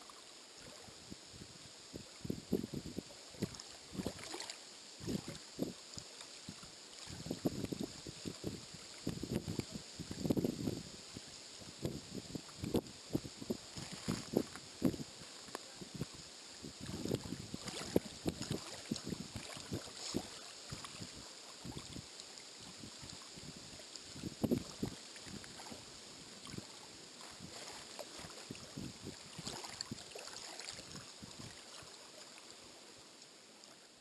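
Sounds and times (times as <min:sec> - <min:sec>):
waves lapping on pebble shore: 0:16.8 - 0:32.6.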